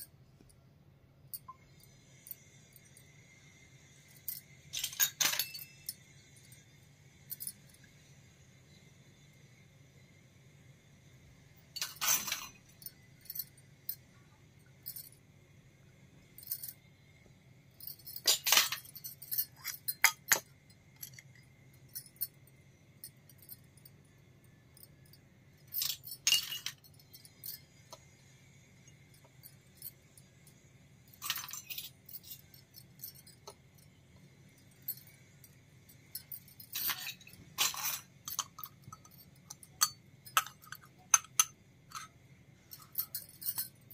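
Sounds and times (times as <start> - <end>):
small metal cookware clinking: 4.7 - 6.2, 11.8 - 13.0, 18.1 - 21.4, 25.7 - 28.2, 36.0 - 43.9.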